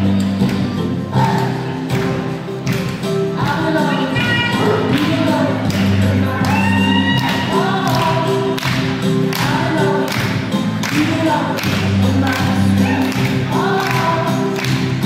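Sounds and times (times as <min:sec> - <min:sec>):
song with singing voices: 0:00.0 - 0:15.0
steady bass notes: 0:00.0 - 0:15.0
choir-like backing vocals: 0:03.4 - 0:15.0.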